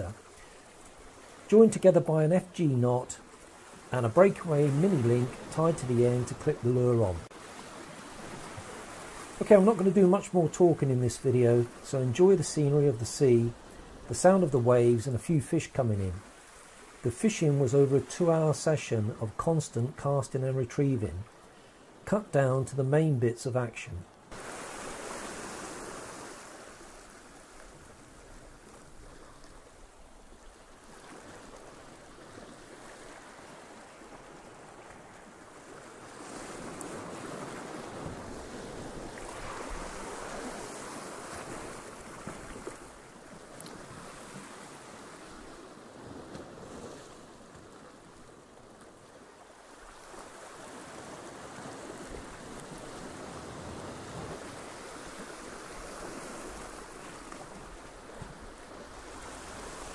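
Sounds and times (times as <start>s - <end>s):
sea waves breaking on rocks: 3.0s - 10.7s, 24.2s - 29.7s, 30.5s - 59.9s.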